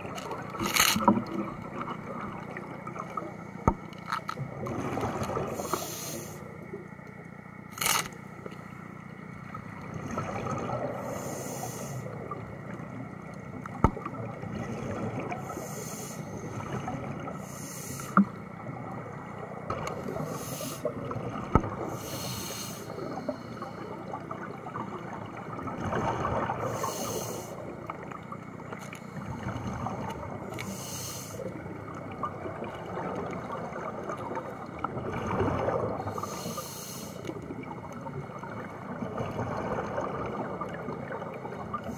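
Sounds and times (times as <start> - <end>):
regulator hissing inhalations: 5.6 - 6.4, 11.1 - 12.1, 15.5 - 16.4, 17.4 - 18.2, 20.2 - 20.9, 21.9 - 23.4, 26.7 - 27.6, 30.6 - 31.5, 36.2 - 37.3.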